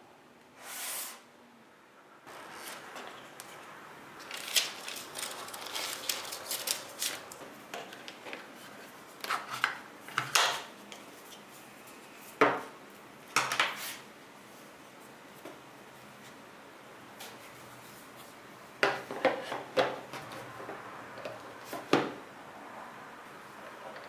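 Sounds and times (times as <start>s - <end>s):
packaging rustling and scraping: 4.2s - 9.7s.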